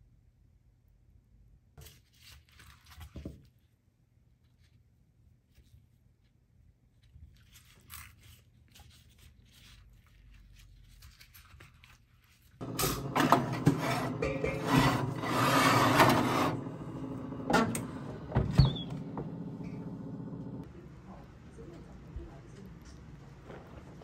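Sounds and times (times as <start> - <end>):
baking dish scraping on oven rack: 12.6 - 19.9.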